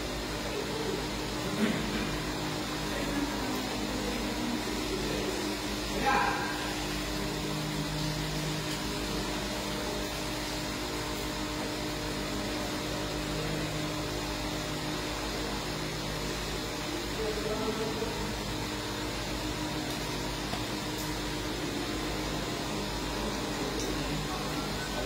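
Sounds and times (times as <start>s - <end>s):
ventilation unit humming: 0.0s - 25.0s.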